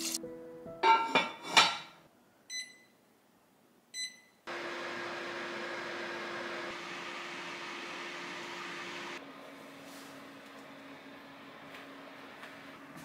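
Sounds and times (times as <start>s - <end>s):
cast-iron lid clanking: 0.8s - 1.9s
short beeps: 2.5s - 3.0s, 4.0s - 4.4s
heater whirring hum: 4.5s - 13.0s.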